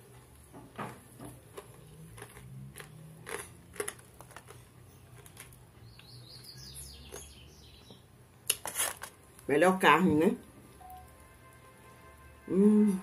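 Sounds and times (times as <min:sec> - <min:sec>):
crunching and chewing: 0:00.0 - 0:07.4, 0:08.4 - 0:09.4
faint high chirps: 0:10.8 - 0:11.3.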